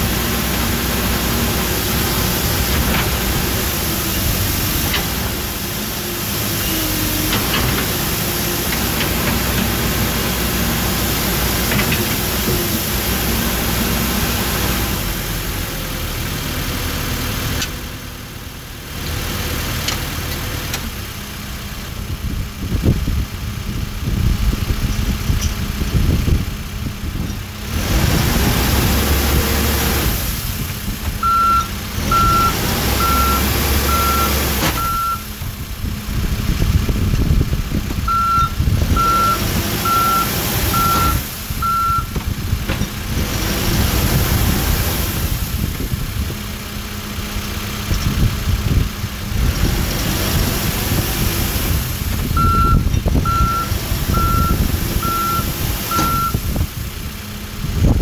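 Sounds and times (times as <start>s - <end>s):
diesel engine running: 0.0s - 58.0s
back-up alarm beeps: 31.2s - 35.3s, 38.1s - 42.1s, 52.4s - 56.4s.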